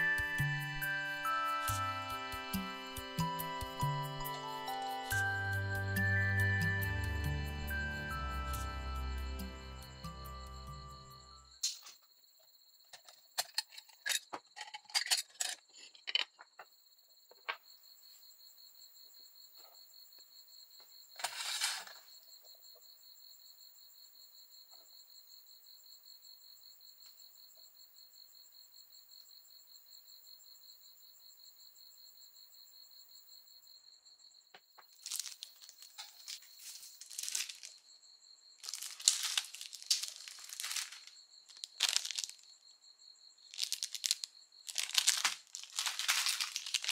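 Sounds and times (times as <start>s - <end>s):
small parts clicking: 12.9s - 16.4s, 34.9s - 37.8s, 38.6s - 42.4s, 43.5s - 46.9s
plastic packaging crinkling: 34.9s - 37.8s, 38.6s - 42.4s, 43.5s - 46.9s.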